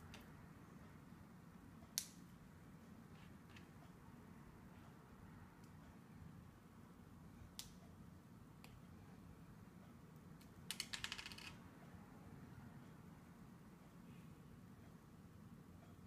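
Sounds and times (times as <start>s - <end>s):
plastic pieces clicking: 10.7s - 11.6s.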